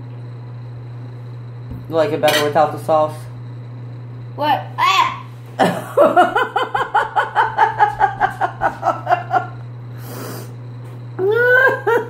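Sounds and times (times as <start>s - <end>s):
person laughing: 5.6s - 9.6s, 11.2s - 12.0s.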